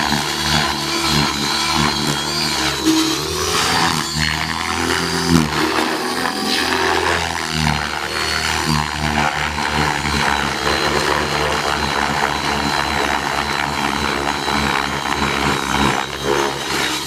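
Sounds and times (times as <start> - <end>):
helicopter rotor blades beating: 0.0 - 17.0
high motor whine: 0.0 - 17.0.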